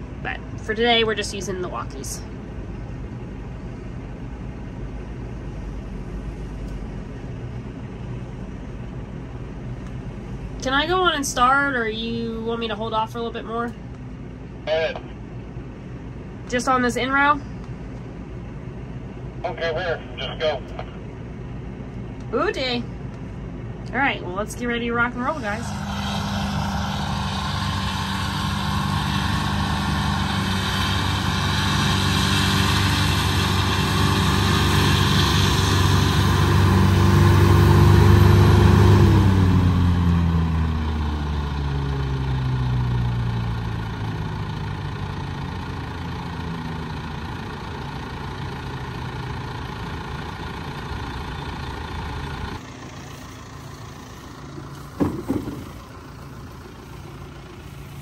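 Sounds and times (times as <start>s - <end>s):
tractor engine slowing to idle: 23.0s - 58.0s
short knock: 55.0s - 55.7s.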